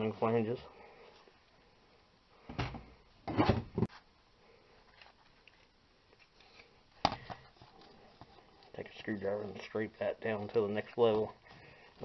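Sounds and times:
screwdriver scraping rust: 7.5 - 12.0.

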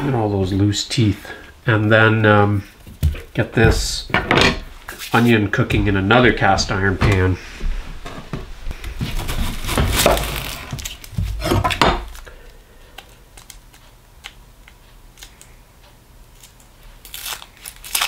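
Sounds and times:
onion skin crinkling: 8.7 - 15.6, 16.2 - 18.0.

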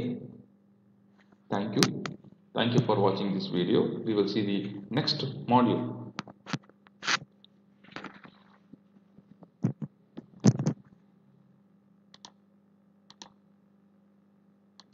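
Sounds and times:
faint steady hum: 0.0 - 14.9
mouse and keyboard clicks: 12.2 - 12.4.

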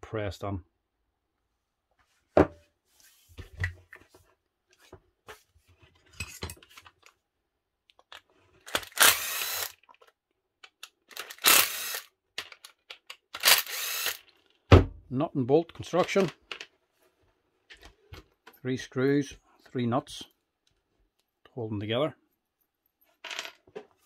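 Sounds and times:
cordless driver running: 8.7 - 9.8, 11.1 - 12.1, 13.4 - 14.2.

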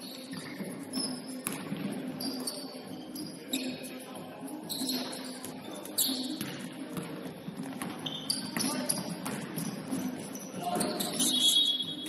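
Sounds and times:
sneakers squeaking on court floor: 0.0 - 12.0
basketball bouncing: 1.4 - 1.9, 6.4 - 10.0.

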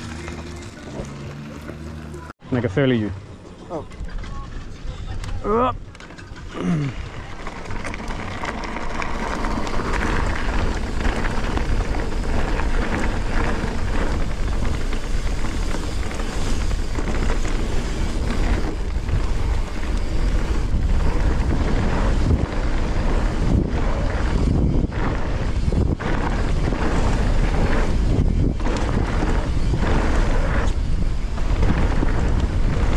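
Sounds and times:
tyres rolling over dirt trail: 0.0 - 32.9
bike clattering over bumps: 3.9 - 32.9
wind buffeting microphone: 3.9 - 32.9.

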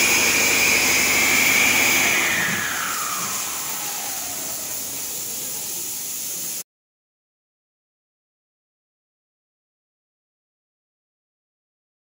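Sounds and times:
diesel engine winding down whine: 0.0 - 5.8
steady hiss: 2.8 - 6.6.

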